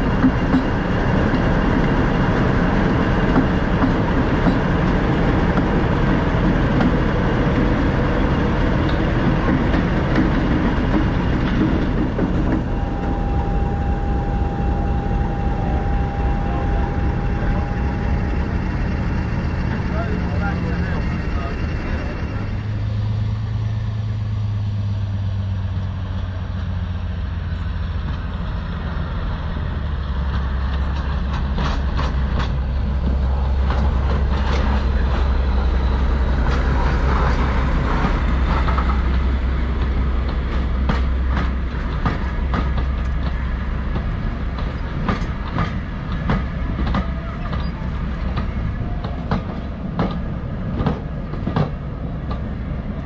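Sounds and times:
diesel locomotive engine drone: 0.0 - 53.0
wheels clicking over rail joints: 8.2 - 12.7, 30.0 - 53.0.

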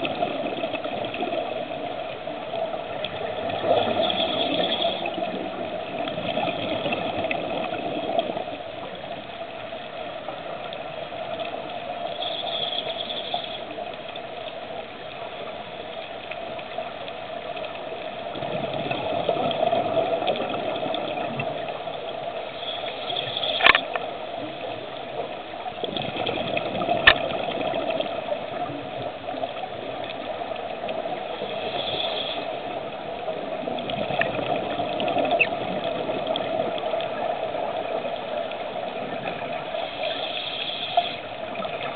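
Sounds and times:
bubbles gushing underwater: 0.0 - 9.2, 18.0 - 22.4, 23.1 - 31.5, 32.1 - 41.9
diver breathing through regulator: 39.9 - 41.2.

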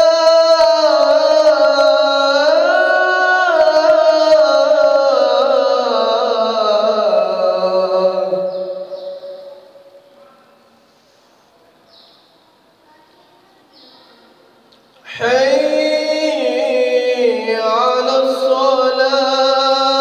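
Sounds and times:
man chanting call to prayer: 0.0 - 10.1, 15.0 - 20.0.

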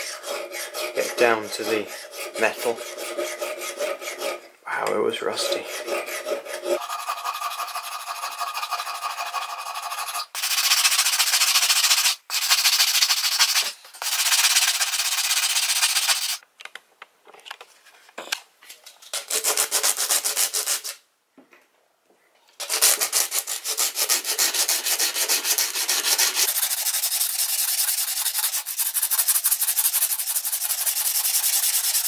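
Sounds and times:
file scraping metal: 0.0 - 11.3, 22.6 - 32.0.

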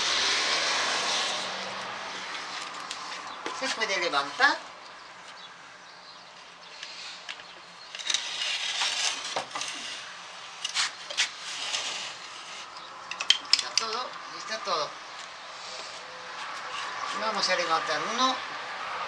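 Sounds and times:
rustling and scraping: 0.3 - 4.6, 6.2 - 14.1, 15.1 - 17.8.

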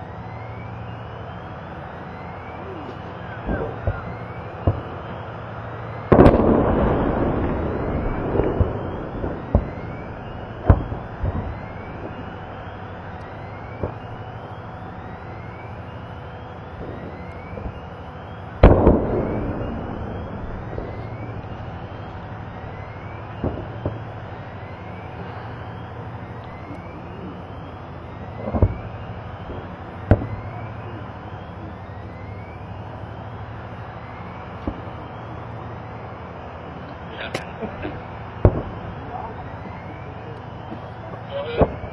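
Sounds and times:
steady background noise: 0.0 - 41.9
explosions and sharp bangs: 6.0 - 12.6, 18.6 - 24.3, 28.3 - 30.6, 38.4 - 38.9.

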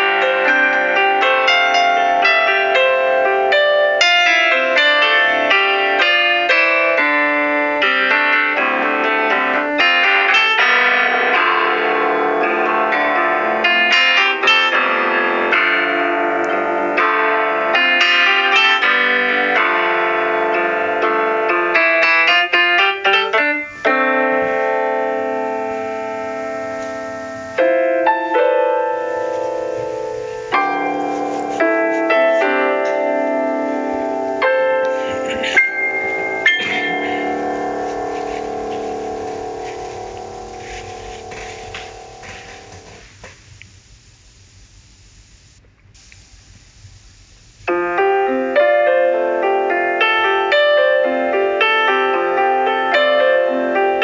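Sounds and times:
piano music: 0.0 - 43.1, 47.6 - 54.0.

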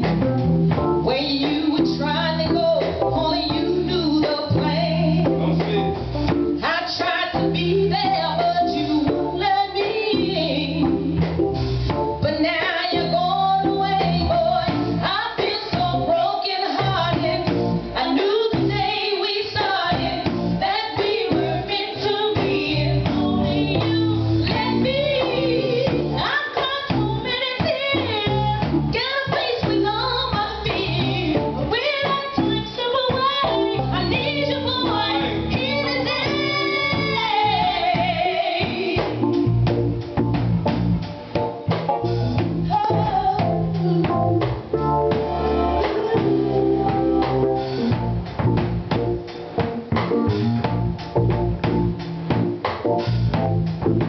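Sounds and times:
drums: 0.0 - 54.0
guitar: 0.0 - 54.0
woman singing: 1.0 - 5.4, 6.6 - 11.0, 12.2 - 39.2, 42.7 - 44.2, 45.8 - 46.6.

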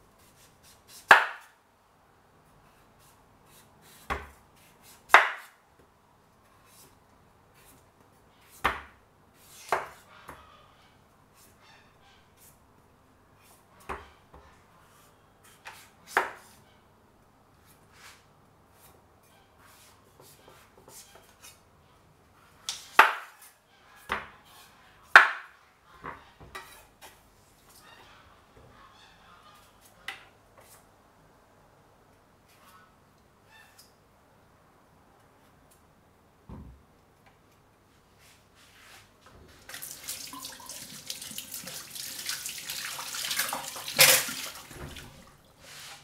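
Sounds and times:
knife chopping on cutting board: 3.8 - 4.4, 5.0 - 5.6.

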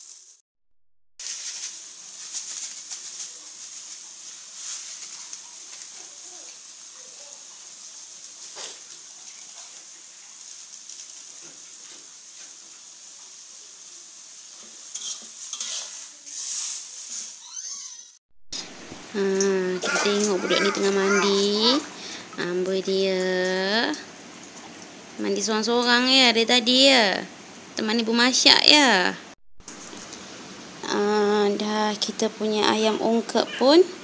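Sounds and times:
greens sizzling in a wok: 0.0 - 0.4, 1.2 - 17.8, 18.8 - 29.0
metal spatula scraping a wok: 14.9 - 17.8.

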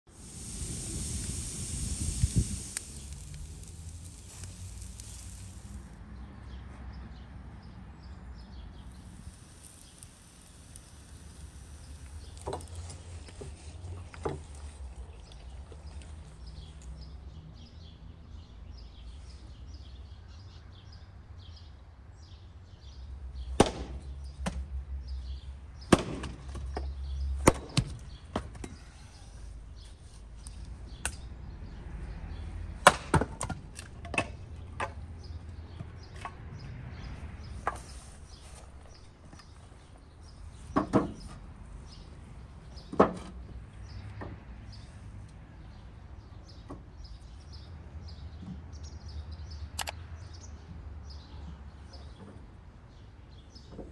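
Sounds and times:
faint hiss: 0.1 - 6.0, 8.8 - 13.9
axe splitting firewood: 9.0 - 13.0.

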